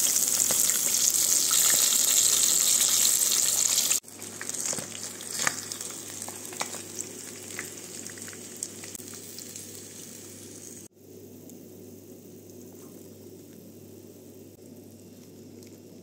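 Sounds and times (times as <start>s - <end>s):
fish sizzling in oil: 0.0s - 10.9s
oil pops and crackles: 4.2s - 9.3s.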